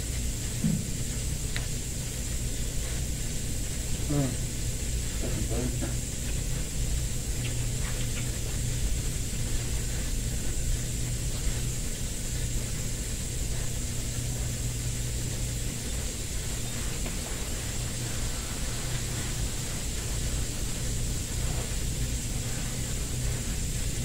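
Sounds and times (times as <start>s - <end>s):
even hiss: 0.0s - 24.0s.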